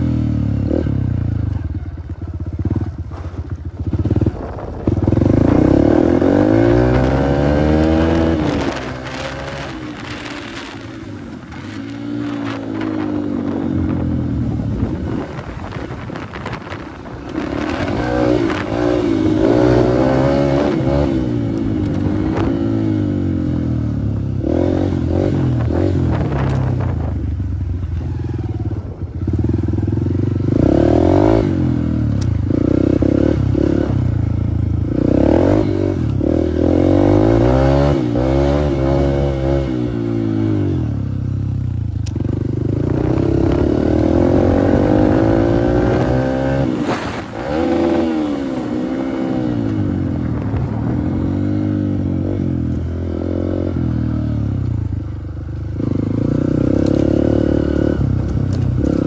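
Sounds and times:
dirt bike engine revving: 0:03.9 - 0:27.1, 0:27.9 - 0:41.1, 0:42.1 - 0:54.6, 0:55.6 - 0:59.0.

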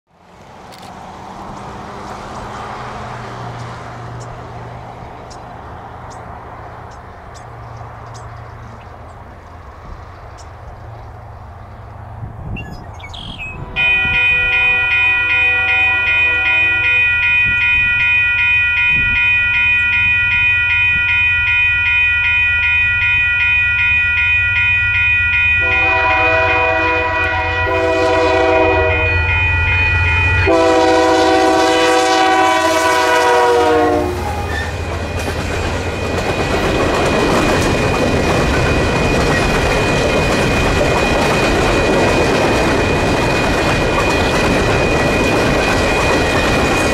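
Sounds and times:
train wheels rattling on rail: 0:00.2 - 0:14.9, 0:25.6 - 0:46.9
locomotive air horn blasts: 0:13.6 - 0:17.6, 0:25.6 - 0:34.8
locomotive rumble: 0:25.6 - 0:46.9.

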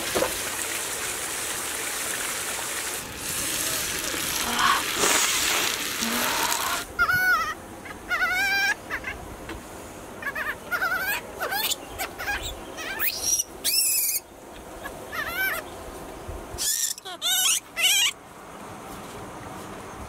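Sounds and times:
baby monkey squealing: 0:06.3 - 0:09.2, 0:10.2 - 0:14.2, 0:15.1 - 0:15.6, 0:16.6 - 0:18.2.

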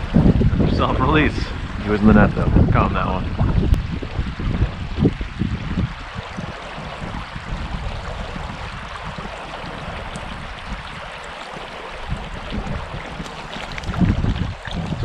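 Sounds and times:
stream water over rocks: 0:00.0 - 0:15.0.

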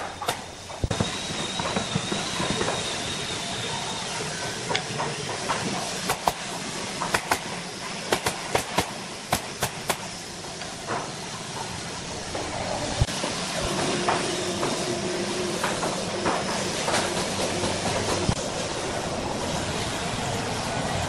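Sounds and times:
nail gun shots: 0:08.1 - 0:10.1.

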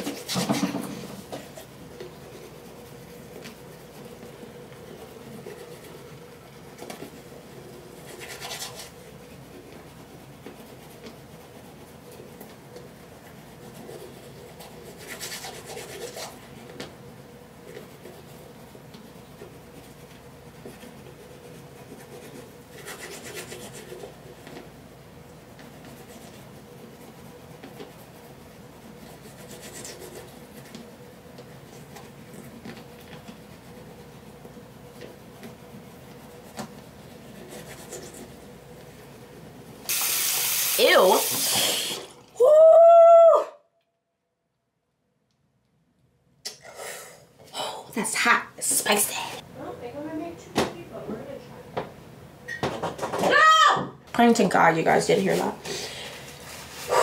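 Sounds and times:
toothbrush scrubbing teeth: 0:01.3 - 0:16.8, 0:17.6 - 0:24.7, 0:25.6 - 0:39.0.

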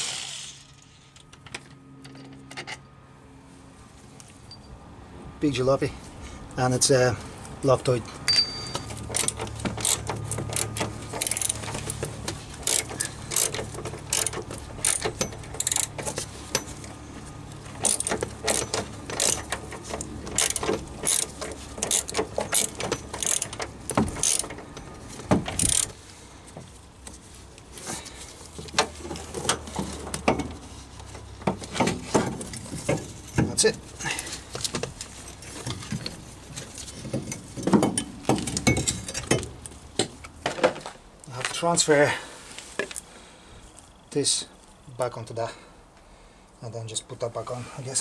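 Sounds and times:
ratchet wrench clicking: 0:09.1 - 0:11.6, 0:12.6 - 0:16.0, 0:17.8 - 0:19.5, 0:20.4 - 0:23.6, 0:24.2 - 0:24.5, 0:25.6 - 0:25.9.

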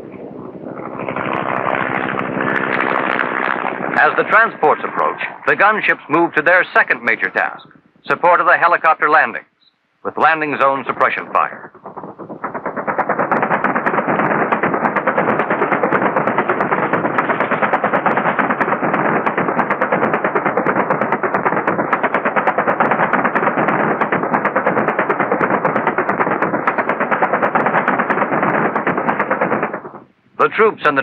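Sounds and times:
rapid-fire gunfire: 0:10.9 - 0:30.1.

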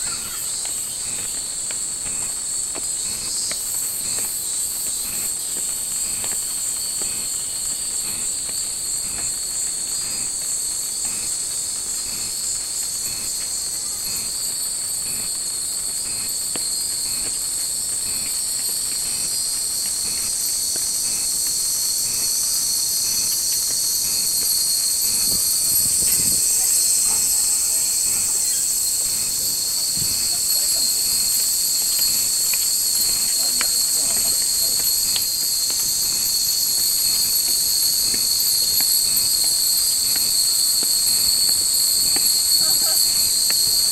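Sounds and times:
cicadas chorus: 0:00.0 - 0:43.9
faint footsteps on stone steps: 0:00.2 - 0:09.4, 0:23.5 - 0:43.9.

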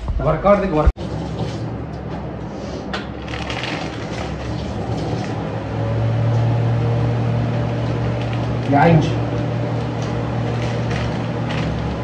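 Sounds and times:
low machine hum: 0:00.0 - 0:12.0
plastic packet crinkling: 0:03.2 - 0:04.6, 0:10.5 - 0:12.0.

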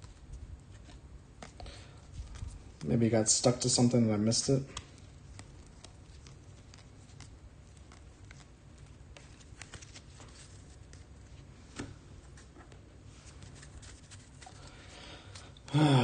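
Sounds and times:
low steady hum: 0:00.0 - 0:16.0
cards clicking and flicking: 0:04.6 - 0:11.1.

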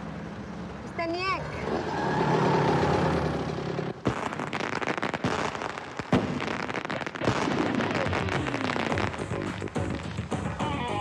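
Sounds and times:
fireworks bangs: 0:02.2 - 0:10.7
fireworks crackling: 0:02.3 - 0:11.0.

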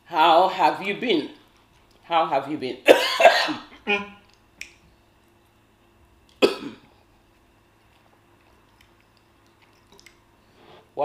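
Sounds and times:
person coughing: 0:02.8 - 0:03.7, 0:06.4 - 0:06.9.

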